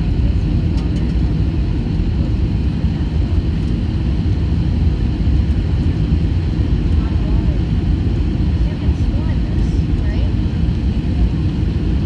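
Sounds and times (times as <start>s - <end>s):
airliner cabin rumble: 0.0s - 12.0s.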